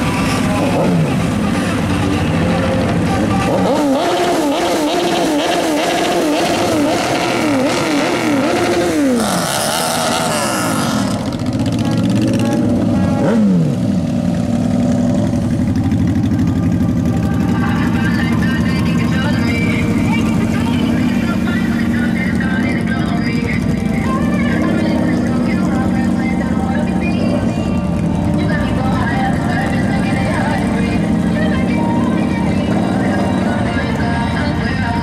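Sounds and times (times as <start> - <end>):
motorcycle engines revving: 0.0 - 35.0.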